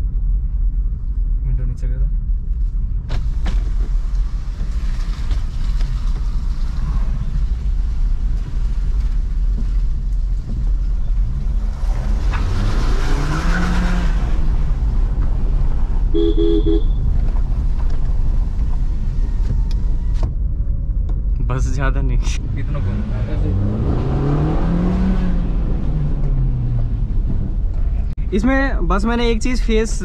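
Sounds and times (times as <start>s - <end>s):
car rumbling over rough road: 0.0s - 30.0s
car horn toot: 16.1s - 17.1s.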